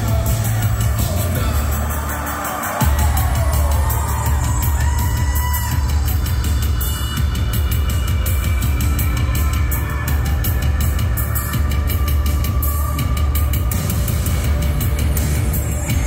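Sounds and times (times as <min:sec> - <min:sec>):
heavy bass line: 0:00.0 - 0:16.0
steady drum beat: 0:00.0 - 0:16.0.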